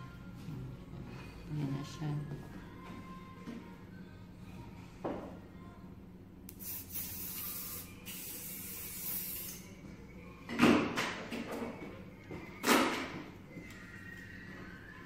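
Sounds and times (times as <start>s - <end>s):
aerosol can spraying: 6.5s - 9.6s.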